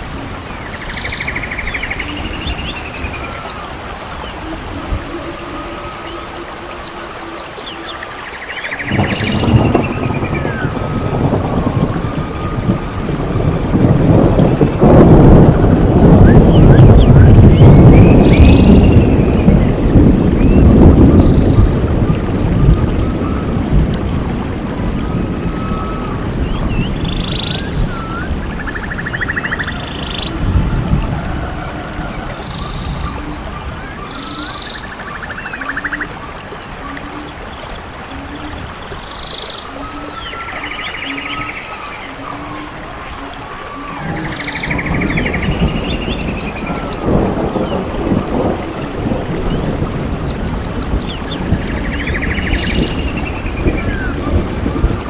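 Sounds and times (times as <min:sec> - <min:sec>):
birds calling: 0:00.0 - 0:23.6, 0:25.0 - 0:55.0
rushing water: 0:00.0 - 0:55.0
swooping whistles with pulsed trills: 0:22.6 - 0:23.7, 0:25.0 - 0:30.4, 0:39.4 - 0:47.7.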